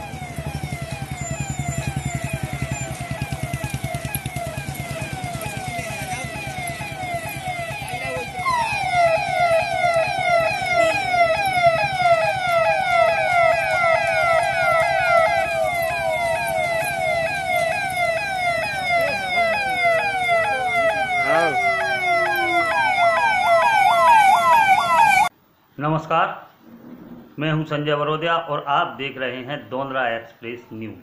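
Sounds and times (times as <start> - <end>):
police sirens: 0.0 - 25.3.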